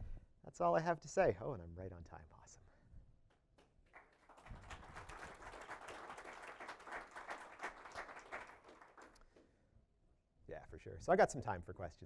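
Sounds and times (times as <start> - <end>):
faint audience applause: 3.6 - 9.2.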